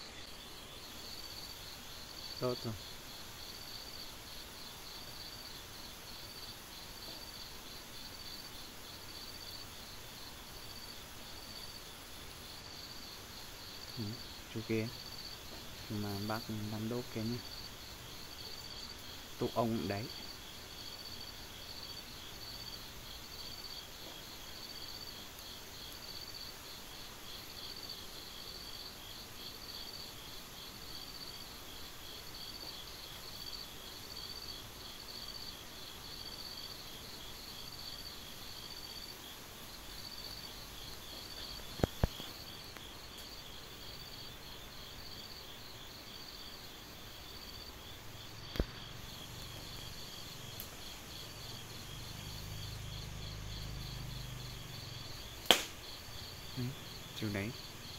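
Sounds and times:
night insects trilling: 0:00.0 - 0:57.9
sharp clicks: 0:55.4 - 0:55.8.

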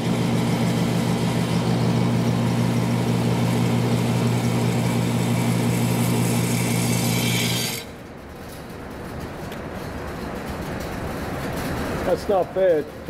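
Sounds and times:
electric motor humming: 0:00.0 - 0:07.9.

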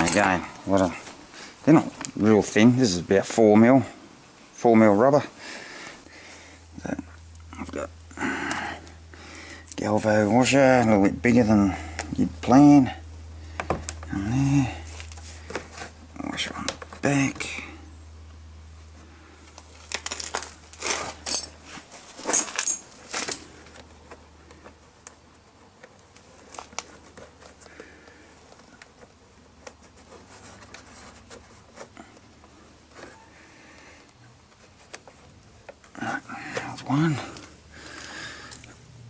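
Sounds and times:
hardware rustling against rubber: 0:00.0 - 0:04.0, 0:04.8 - 0:38.9
metal bolts and nuts clinking: 0:19.9 - 0:23.4.

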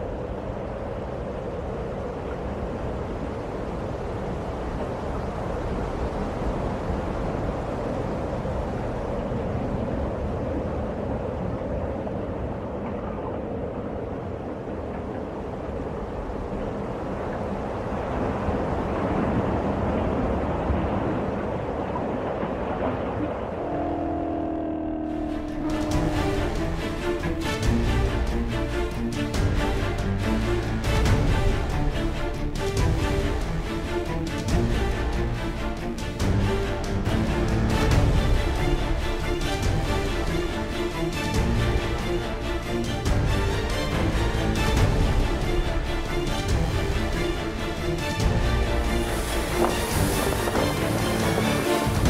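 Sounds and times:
low rumble: 0:00.0 - 0:52.0
wind and sea roar: 0:00.0 - 0:52.0
rushing roar: 0:22.5 - 0:29.1, 0:43.6 - 0:52.0.

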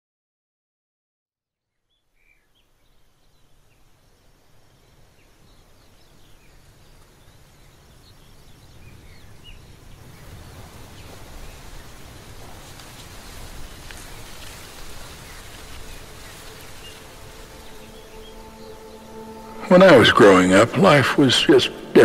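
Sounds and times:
steady rushing noise: 0:09.8 - 0:22.0
bird chirps: 0:15.1 - 0:22.0.

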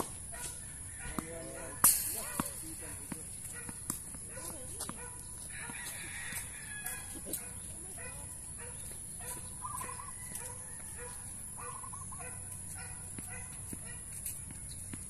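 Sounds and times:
tennis balls struck by rackets: 0:00.0 - 0:05.9, 0:13.1 - 0:15.0
bird clucking calls: 0:09.2 - 0:10.3, 0:11.6 - 0:12.4.

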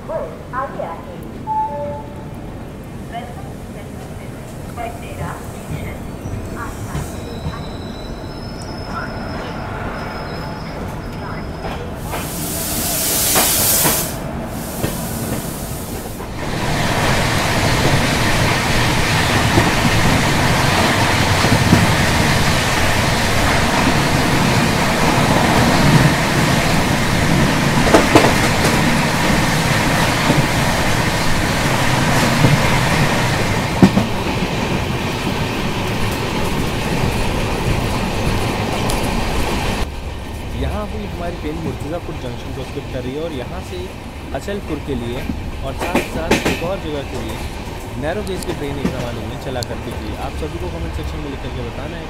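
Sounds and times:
train wheels rumbling on rail: 0:02.2 - 0:52.0
rushing air: 0:12.0 - 0:39.9
wheels clacking over rail joints: 0:13.4 - 0:39.6, 0:43.4 - 0:51.0.

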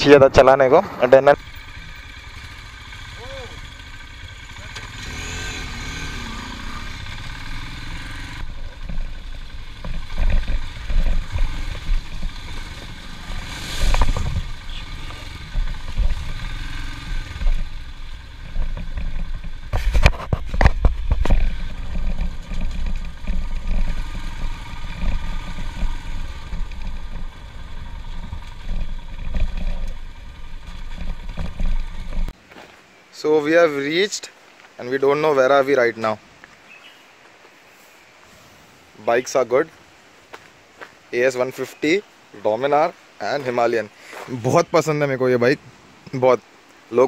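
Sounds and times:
motorcycle engine running: 0:00.0 - 0:32.4
knocks and rattles from bumps: 0:08.4 - 0:13.1, 0:18.4 - 0:32.4.

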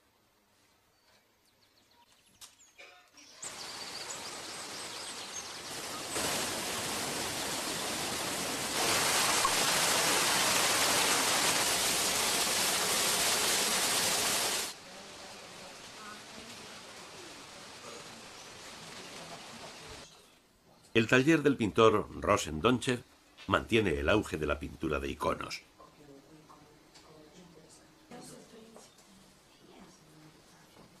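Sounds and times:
water rushing down a channel: 0:03.4 - 0:20.1.

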